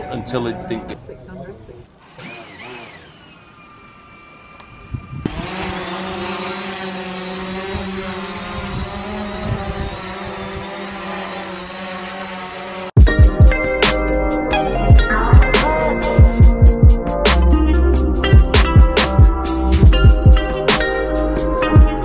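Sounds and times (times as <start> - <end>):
drone propellers whining: 2.0 - 13.9.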